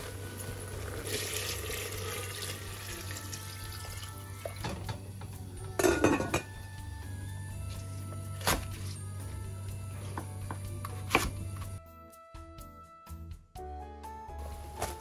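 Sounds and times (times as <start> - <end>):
dishes clinking: 5.8 - 6.5.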